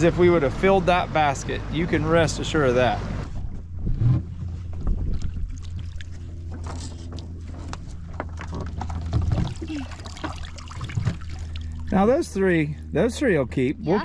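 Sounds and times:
steady low hum: 0:00.0 - 0:14.0
water streaming off wire trap: 0:09.1 - 0:12.1.

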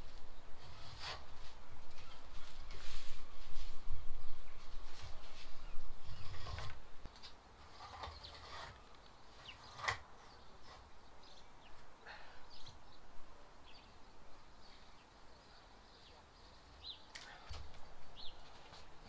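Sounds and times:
knife cutting vinyl flooring: 0:07.6 - 0:08.8.

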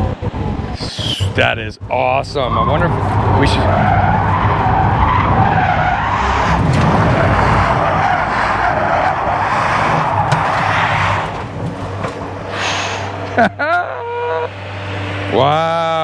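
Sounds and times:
tires squealing: 0:02.0 - 0:16.0.

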